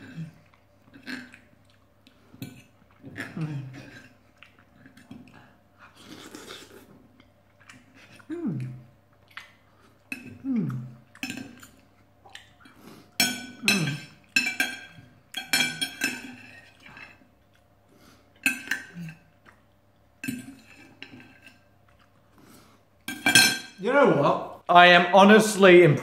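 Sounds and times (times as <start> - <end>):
person humming: 8.3 - 8.8, 10.4 - 11.0
cutlery clinking on plate: 13.2 - 17.1, 23.1 - 23.8.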